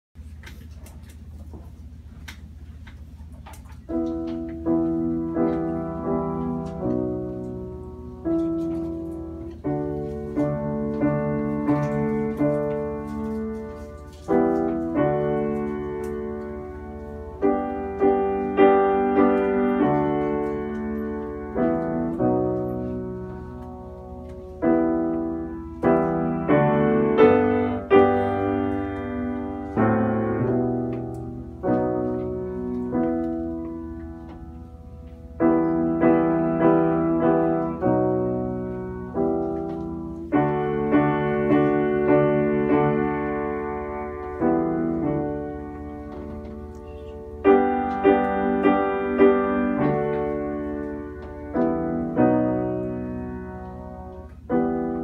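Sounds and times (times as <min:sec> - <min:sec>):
grand piano chords: 0:00.2 - 0:55.0.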